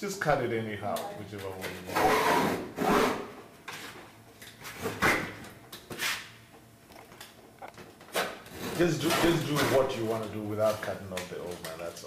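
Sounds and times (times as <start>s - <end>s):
canvas being cut by hand: 2.0s - 3.2s.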